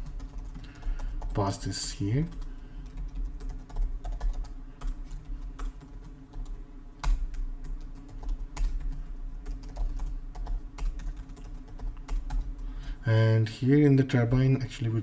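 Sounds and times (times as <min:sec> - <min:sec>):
keyboard typing: 0:00.0 - 0:01.5, 0:02.2 - 0:12.7
steady low hum: 0:00.0 - 0:15.0.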